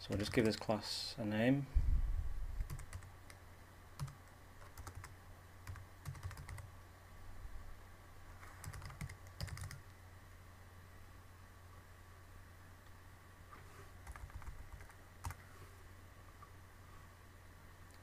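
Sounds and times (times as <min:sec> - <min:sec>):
typing on a computer keyboard: 0:00.0 - 0:00.6, 0:02.6 - 0:03.4, 0:04.0 - 0:06.7, 0:08.6 - 0:09.8, 0:14.0 - 0:15.4
low steady hum: 0:00.0 - 0:18.0.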